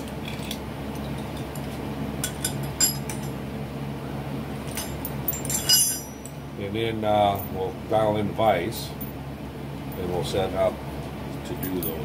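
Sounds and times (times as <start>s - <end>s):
steady low hum: 0.0s - 12.0s
metallic clinks of clamps and wrench: 4.7s - 6.4s.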